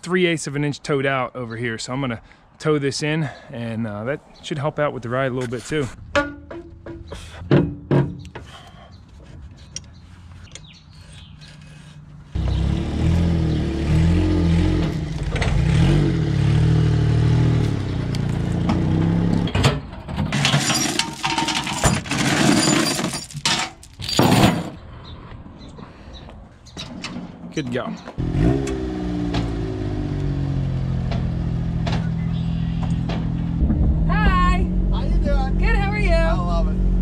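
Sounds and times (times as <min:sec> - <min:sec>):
metal knocking on trailer: 0:06.2 - 0:08.2
chains clanking and rattling: 0:20.3 - 0:24.8.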